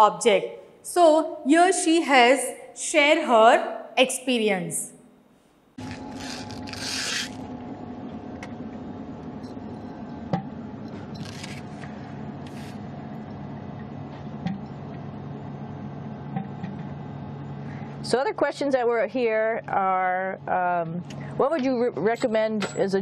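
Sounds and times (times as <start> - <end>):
cabin fans humming: 5.7 - 23.0.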